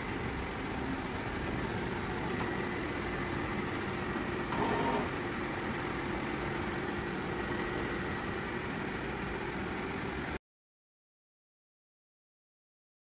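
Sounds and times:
faint high whine: 0:00.0 - 0:10.4
steady mechanical hum: 0:00.0 - 0:10.4.

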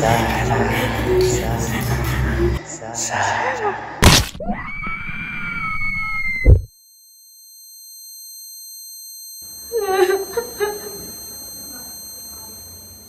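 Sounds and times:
horror drone of high tones: 0:09.4 - 0:13.0.

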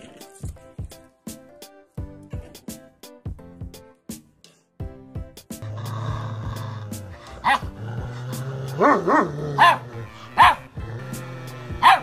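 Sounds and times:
background music: 0:00.0 - 0:12.0
puppy barking: 0:07.4 - 0:07.8, 0:08.8 - 0:10.7, 0:11.7 - 0:12.0.

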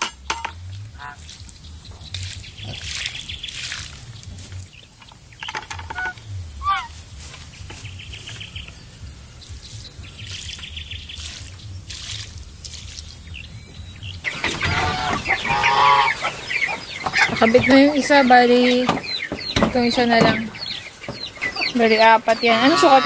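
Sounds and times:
water pouring from bucket: 0:01.2 - 0:04.8, 0:10.2 - 0:13.5
chickens clucking: 0:04.8 - 0:08.8, 0:14.2 - 0:23.0
bird chirps: 0:13.0 - 0:23.0.

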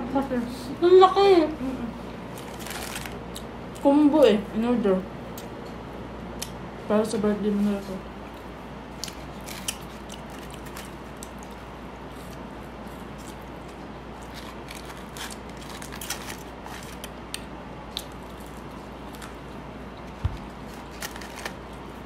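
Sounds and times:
steady low hum: 0:00.0 - 0:22.0
person chewing: 0:08.3 - 0:21.9.

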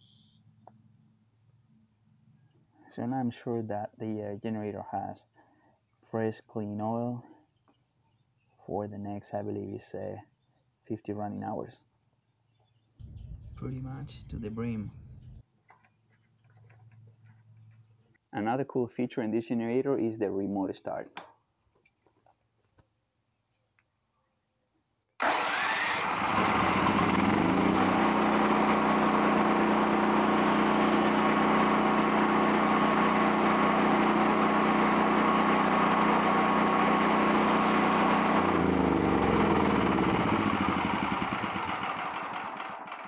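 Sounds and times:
generator engine running: 0:13.0 - 0:15.4, 0:25.2 - 0:43.0.

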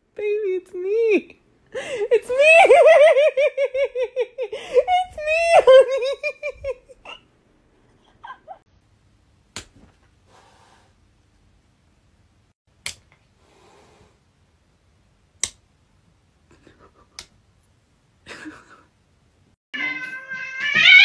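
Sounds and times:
cat hissing softly: 0:10.3 - 0:11.0, 0:13.4 - 0:14.2.

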